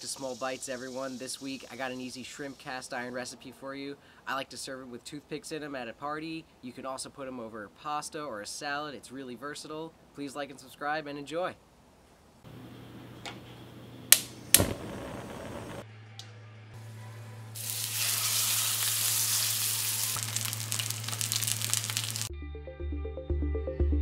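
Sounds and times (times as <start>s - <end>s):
steak sizzling in a skillet: 17.6s - 22.3s.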